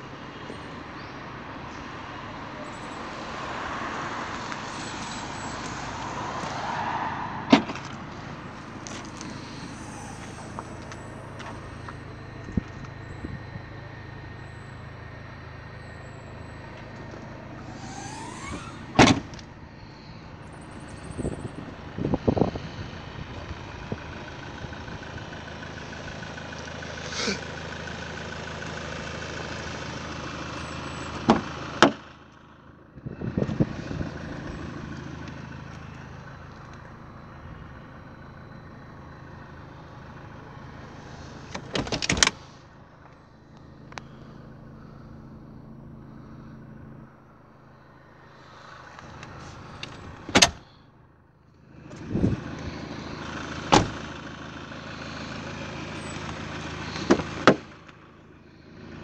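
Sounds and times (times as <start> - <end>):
car engine idling: 0.0 - 59.0
car doors thudding shut: 7.5 - 8.0, 17.7 - 19.4, 41.5 - 42.4, 50.3 - 50.6, 53.7 - 54.0, 57.0 - 57.7.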